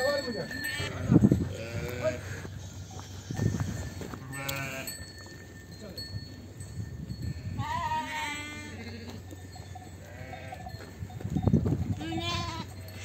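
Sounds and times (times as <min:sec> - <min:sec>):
sheep bleating: 0:00.6 - 0:05.0, 0:07.6 - 0:09.2, 0:10.0 - 0:10.7, 0:12.0 - 0:13.0
flock shuffling on dirt: 0:01.8 - 0:05.4.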